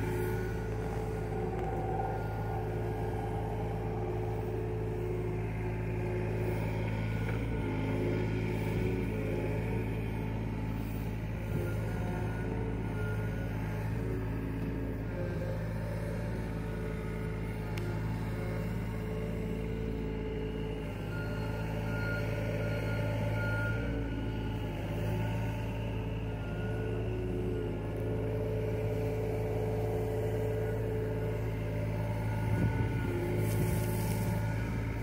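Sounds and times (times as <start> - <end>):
excavator diesel engine running: 0.0 - 35.0.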